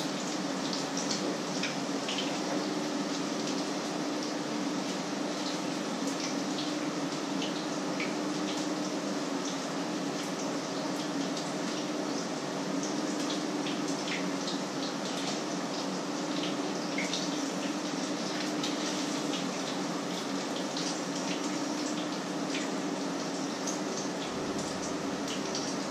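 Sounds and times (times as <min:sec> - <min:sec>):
low steady hum: 0:24.2 - 0:25.9.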